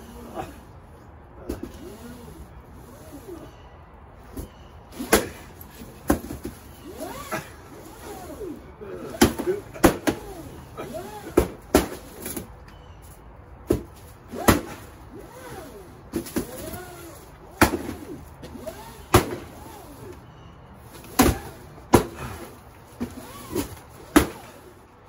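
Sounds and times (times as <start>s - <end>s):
stick striking a paper pinata: 9.2s - 10.2s, 17.6s - 18.0s, 19.1s - 19.4s, 21.1s - 22.2s, 24.1s - 24.4s.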